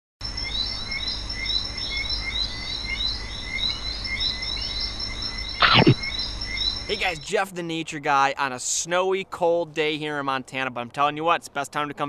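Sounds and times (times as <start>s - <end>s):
high insect-like drone: 0.2s - 7.2s
short chirps: 5.6s - 6.2s.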